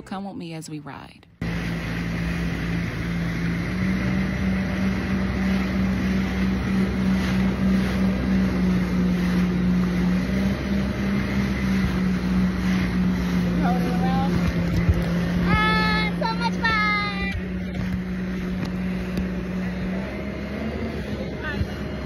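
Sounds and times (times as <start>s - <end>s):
jet ski engine running: 0.0s - 22.0s.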